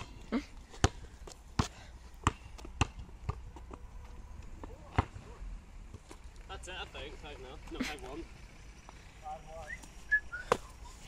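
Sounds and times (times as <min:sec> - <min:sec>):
basketball bouncing on asphalt: 0:00.0 - 0:06.3, 0:10.4 - 0:10.8.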